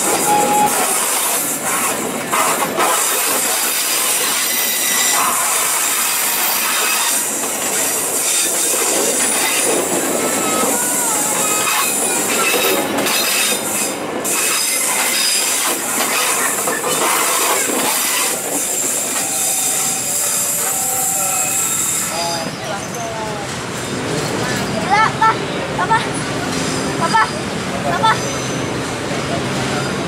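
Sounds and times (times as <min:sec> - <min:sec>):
train wheels rumbling over rails: 0:00.0 - 0:30.0
wheel squeal: 0:00.1 - 0:02.0, 0:02.9 - 0:23.1.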